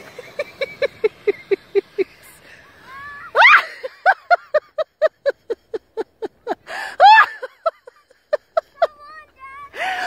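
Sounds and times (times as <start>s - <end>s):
woman laughing nervously: 0.0s - 2.4s, 3.4s - 9.0s
woman squealing: 3.3s - 3.8s.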